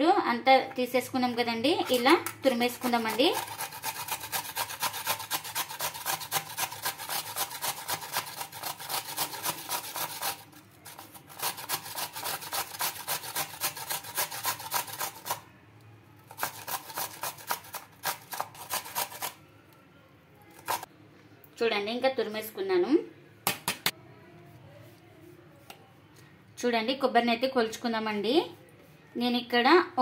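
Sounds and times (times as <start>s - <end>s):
coconut grating on metal grater: 1.7s - 15.4s, 16.3s - 19.4s, 20.5s - 20.9s.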